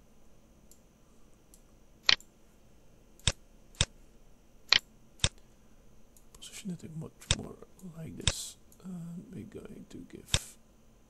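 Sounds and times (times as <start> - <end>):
faint high whine: 0.0 - 11.0
computer mouse clicks: 1.5 - 2.3, 3.2 - 3.9, 4.7 - 5.4, 7.2 - 7.5, 10.3 - 10.5.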